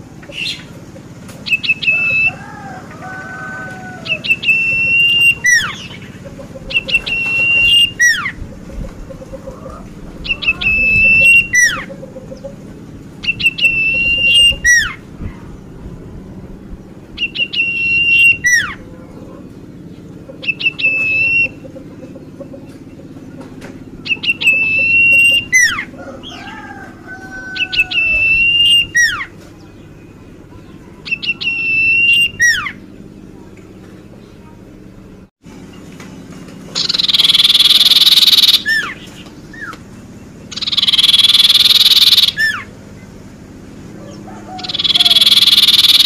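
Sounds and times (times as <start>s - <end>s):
bird singing high whistle: 4.1s - 5.9s, 13.2s - 15.0s, 17.2s - 18.8s, 24.1s - 25.8s, 27.8s - 29.3s, 31.1s - 32.8s, 36.8s - 39.0s, 40.5s - 42.7s, 44.6s - 46.0s
soft low bird whistle: 44.6s - 46.0s.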